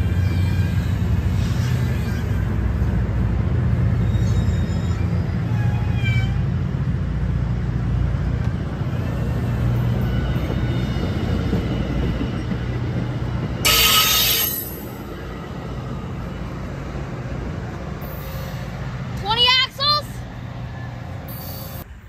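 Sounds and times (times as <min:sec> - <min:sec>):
high-pitched wheel squeals: 0:00.0 - 0:02.6, 0:04.0 - 0:06.5, 0:13.6 - 0:15.0, 0:21.3 - 0:21.9
train wheels rumbling on rail: 0:00.0 - 0:22.0.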